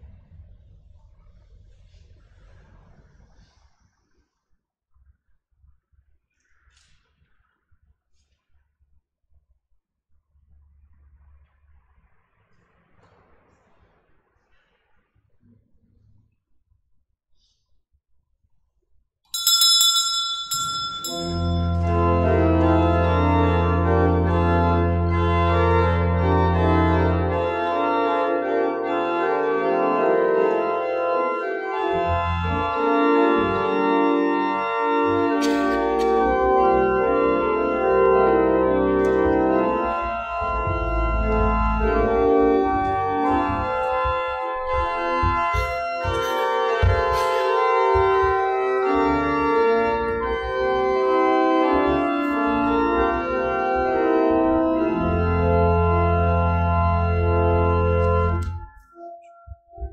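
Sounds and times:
church organ chords: 20.6s - 59.9s.

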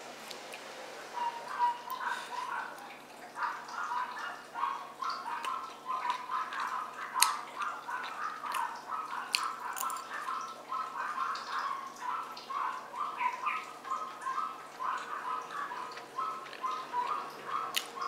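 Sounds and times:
person chewing food: 5.4s - 10.4s, 15.0s - 18.0s
sharp mouth clicks: 17.7s - 18.0s.

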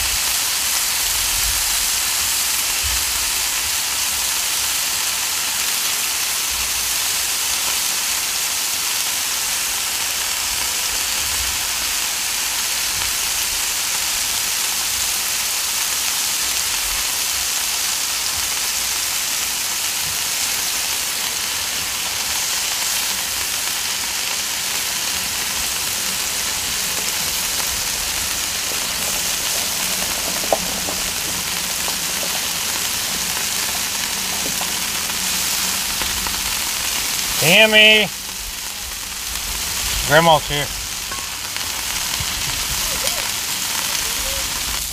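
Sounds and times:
food sizzling on griddle: 0.0s - 44.9s.

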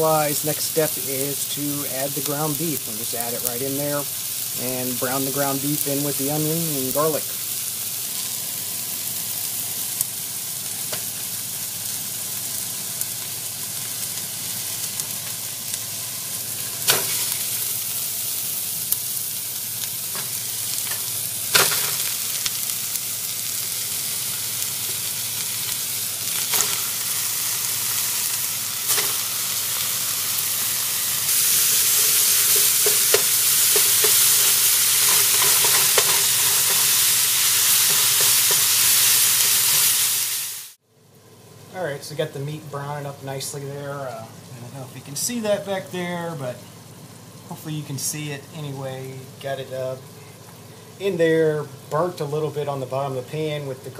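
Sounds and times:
meat sizzling in oil: 0.0s - 41.6s
wooden spoon stirring: 31.9s - 37.0s.

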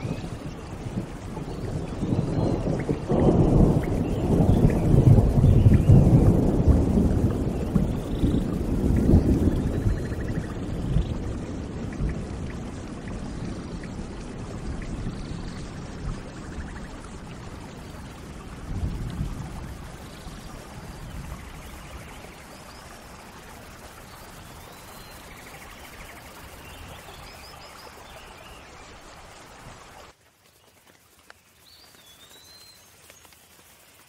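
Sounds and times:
steady rain falling: 0.0s - 34.0s
birds chirping: 1.4s - 12.6s.

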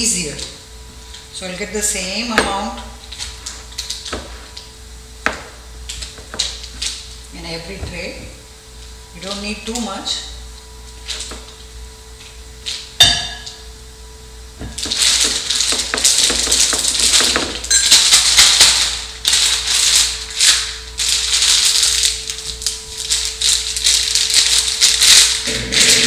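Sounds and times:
plastic bag crinkling: 14.8s - 26.0s.

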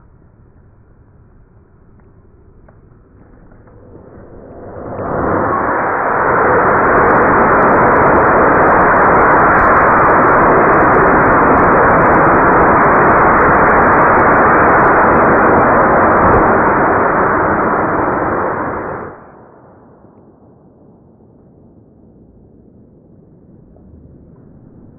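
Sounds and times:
rocket motor exhaust rushing: 3.0s - 19.2s.

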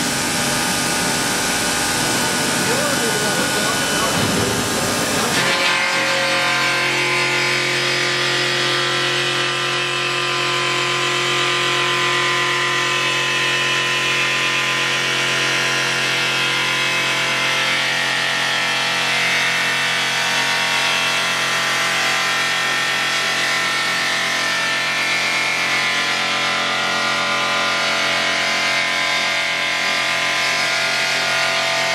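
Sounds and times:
motor hum: 0.0s - 6.7s.

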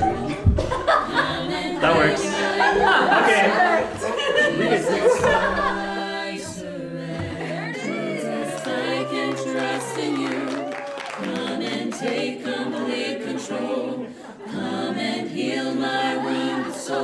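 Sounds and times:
vocal group singing gospel chorus: 0.0s - 17.0s
hand claps: 8.6s - 12.3s.

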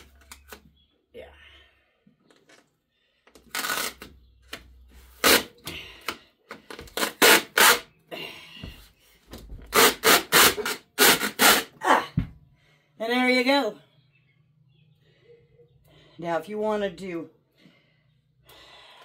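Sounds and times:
adhesive pads ripping off plastic: 3.4s - 4.6s.

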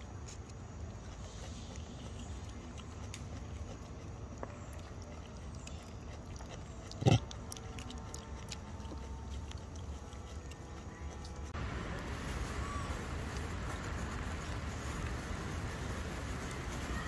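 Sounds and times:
low rumble: 11.3s - 17.0s.

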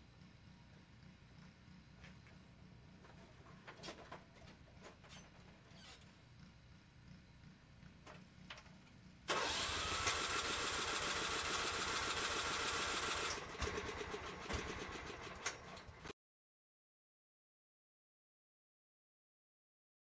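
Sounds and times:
starter motor cranking engine: 7.8s - 16.1s.

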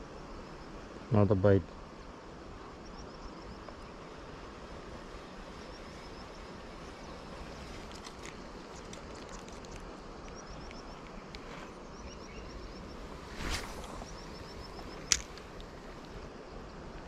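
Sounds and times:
light clicks: 7.8s - 11.5s.

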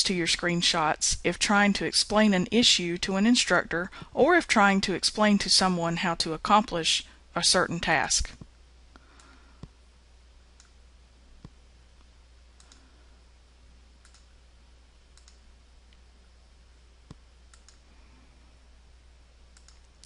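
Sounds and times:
low steady hum: 0.0s - 20.0s
computer mouse clicks: 12.6s - 12.9s, 14.0s - 14.3s, 15.1s - 15.4s, 17.1s - 17.8s, 19.5s - 20.0s.

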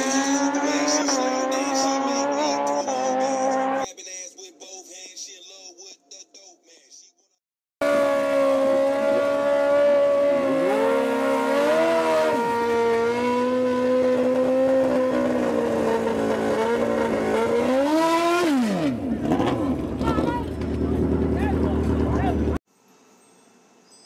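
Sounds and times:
motorcycle engine revving: 0.0s - 3.9s, 7.8s - 22.6s.

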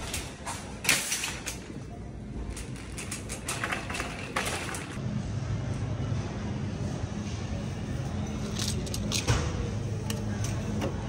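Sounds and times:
shopping cart clanking and rattling: 0.0s - 5.0s
cart wheels on tiled floor: 2.4s - 5.0s.

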